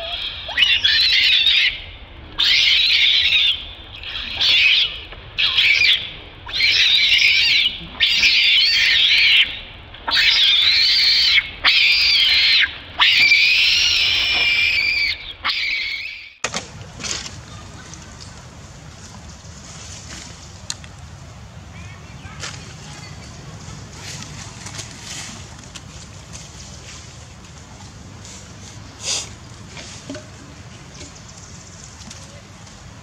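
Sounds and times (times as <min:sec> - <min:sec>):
baby monkey screaming: 0:00.0 - 0:16.4.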